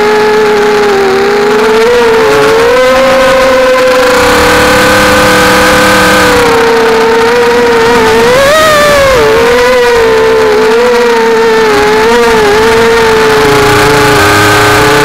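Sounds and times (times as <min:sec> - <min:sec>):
quadcopter propellers whining: 0:00.0 - 0:15.0.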